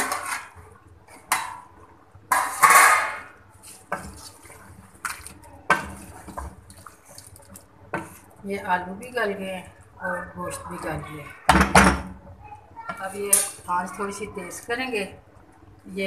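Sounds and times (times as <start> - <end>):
wooden spoon stirring curry: 3.4 - 8.8.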